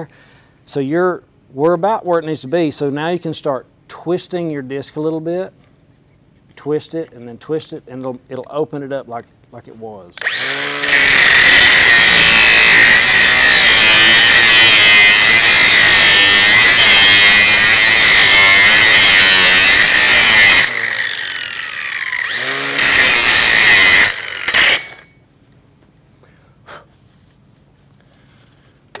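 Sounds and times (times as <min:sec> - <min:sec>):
angle grinder grinding metal: 0:10.2 - 0:25.1.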